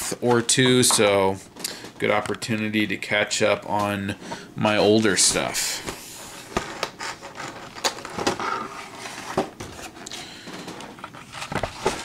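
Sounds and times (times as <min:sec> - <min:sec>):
plastic rustling: 0:05.0 - 0:12.0.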